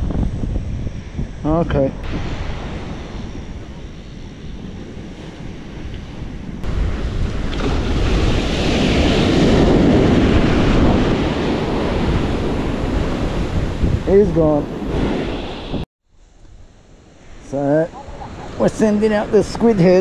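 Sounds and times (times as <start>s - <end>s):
wind rumbling on microphone: 0.0s - 20.0s
surf breaking on beach: 2.1s - 15.8s.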